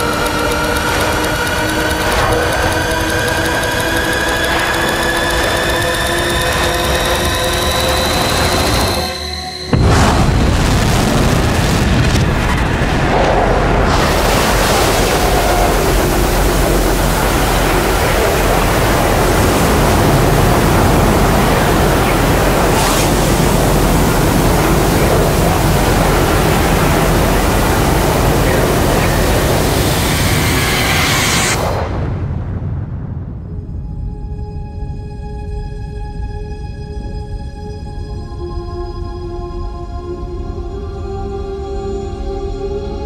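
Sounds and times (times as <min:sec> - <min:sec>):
loud rushing noise: 0:00.0 - 0:33.9.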